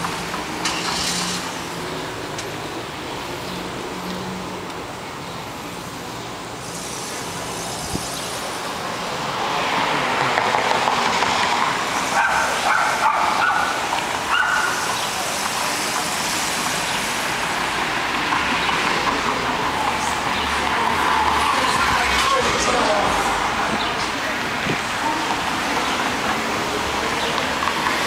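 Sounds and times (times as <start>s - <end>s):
cars passing: 0.0s - 28.0s.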